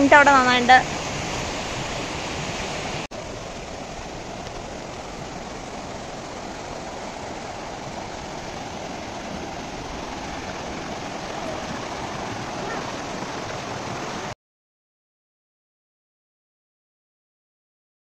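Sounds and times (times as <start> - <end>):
water rushing over rocks: 0.0 - 14.4.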